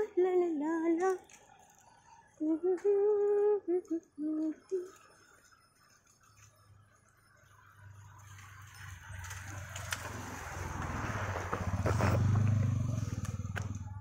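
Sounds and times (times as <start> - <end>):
vehicle passing on road: 7.5 - 14.0.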